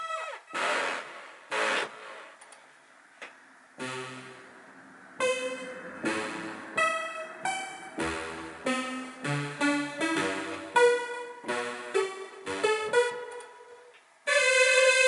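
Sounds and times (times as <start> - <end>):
plucky synth notes and chords: 3.8 - 15.0.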